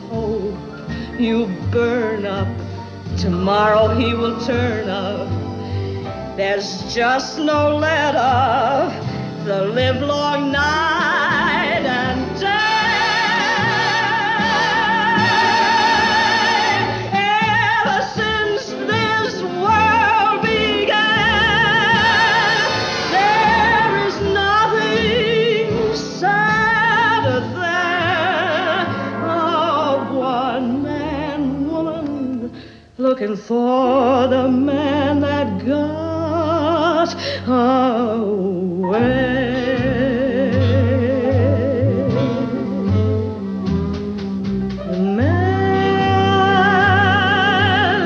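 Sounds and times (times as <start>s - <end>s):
musical accompaniment: 0.0s - 48.0s
singer with wobbling vibrato: 11.0s - 32.1s.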